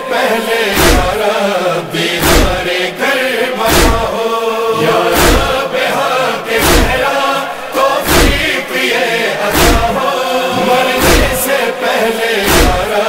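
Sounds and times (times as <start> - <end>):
voices chanting a lament: 0.0 - 13.0
deep thumps: 0.8 - 1.2, 2.2 - 2.7, 3.7 - 4.2, 5.1 - 5.6, 6.6 - 7.1, 8.0 - 8.5, 9.5 - 11.4, 12.5 - 12.9.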